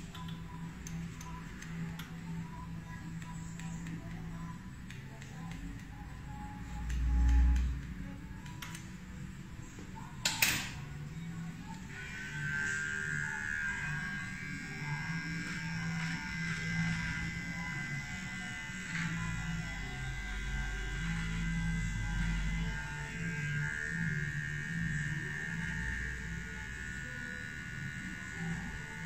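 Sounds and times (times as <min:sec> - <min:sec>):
electric beard trimmer whine: 0:10.8 - 0:29.0.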